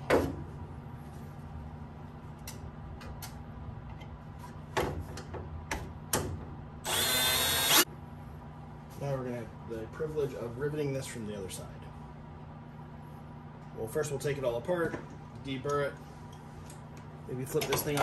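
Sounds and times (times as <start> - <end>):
cordless drill drilling aluminium: 6.9 - 7.8.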